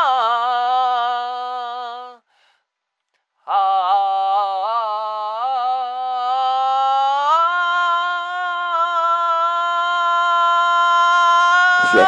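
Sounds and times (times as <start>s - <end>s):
person singing long note: 3.5s - 12.0s.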